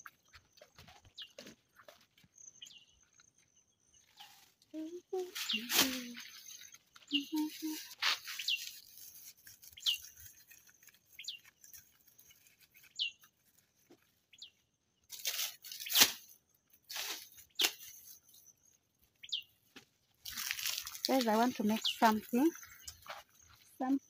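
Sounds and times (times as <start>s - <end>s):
bird chirping: 0.0s - 15.1s, 17.4s - 19.7s, 21.6s - 24.0s
dry leaves tearing and rustling: 5.2s - 13.8s, 15.1s - 18.2s, 20.2s - 22.4s.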